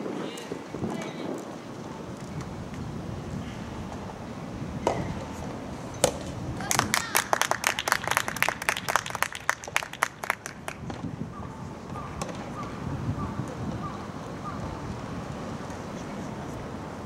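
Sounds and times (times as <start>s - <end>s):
racket hitting ball: 4.8s - 5.3s, 6.0s - 6.4s
spectators clapping: 6.6s - 10.9s.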